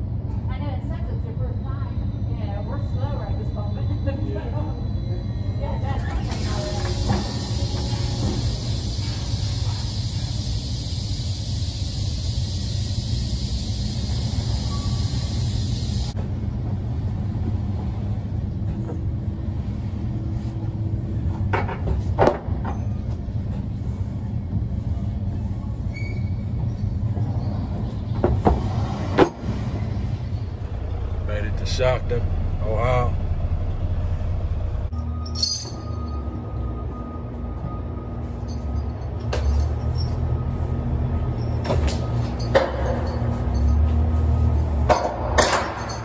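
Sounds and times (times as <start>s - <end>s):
crane and machinery rumble: 0.0s - 46.0s
hiss: 6.2s - 16.2s.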